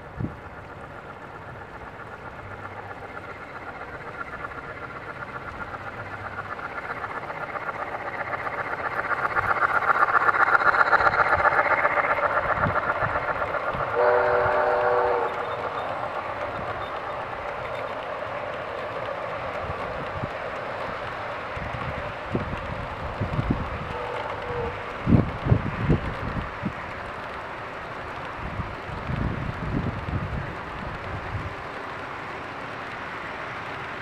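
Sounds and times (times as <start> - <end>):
freight cars rolling on track: 0.0 - 34.0
steam locomotive chuffing: 0.0 - 34.0
train whistle blast: 13.9 - 15.6, 23.9 - 24.8.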